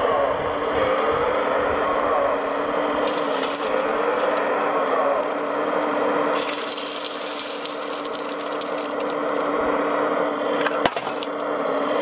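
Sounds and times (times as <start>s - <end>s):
electric motor humming: 0.0s - 12.0s
loud crackling hiss: 1.0s - 9.9s.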